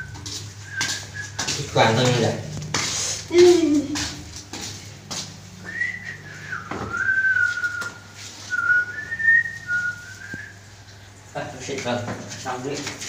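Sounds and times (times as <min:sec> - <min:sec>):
person whistling a tune: 0:00.0 - 0:01.7, 0:05.6 - 0:10.6.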